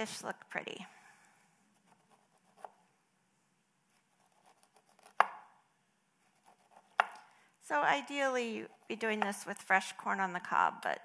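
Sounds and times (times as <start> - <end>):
knife scraping corn: 4.0 - 5.2, 6.2 - 7.2.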